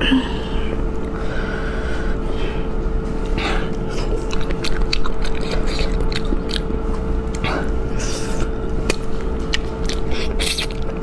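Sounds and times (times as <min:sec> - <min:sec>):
steady hum: 0:00.0 - 0:11.0
cracks of bone and crisp meat: 0:08.7 - 0:11.0.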